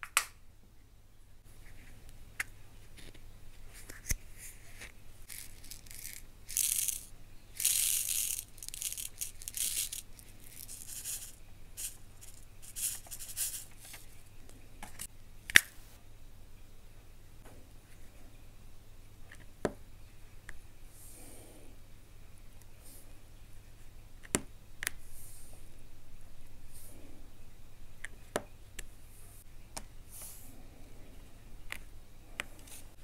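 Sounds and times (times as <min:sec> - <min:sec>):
drills rattling in plastic box: 0:05.3 - 0:13.7.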